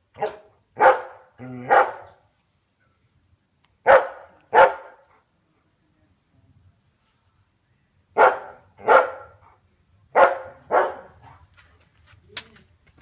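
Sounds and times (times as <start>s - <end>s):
dog barking: 0.1s - 2.2s, 3.8s - 5.1s, 8.2s - 11.4s.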